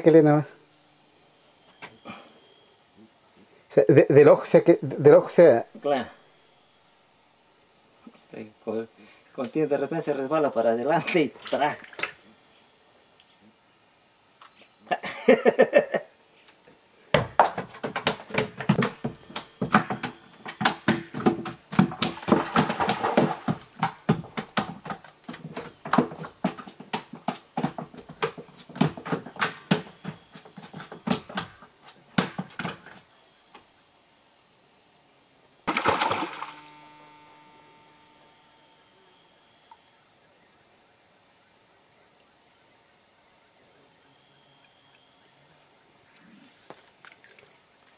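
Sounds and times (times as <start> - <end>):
insects droning: 0.0 - 47.9
fish slapping on wooden floor: 17.4 - 33.0, 35.7 - 36.6.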